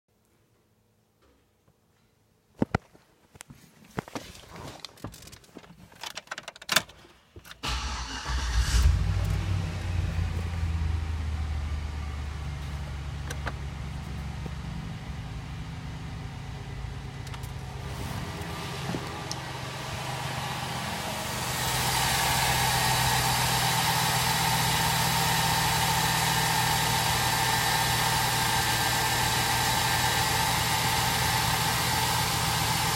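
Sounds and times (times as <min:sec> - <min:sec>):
engine starting and idling: 0:07.6 - 0:12.0.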